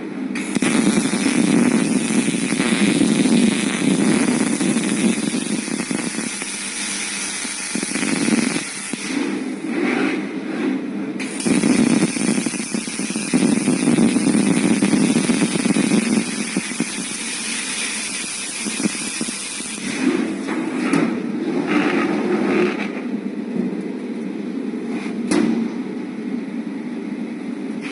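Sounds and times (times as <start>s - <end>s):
uneven machine noise: 0.0s - 23.8s
welding arc hissing: 0.4s - 9.8s, 11.2s - 20.5s.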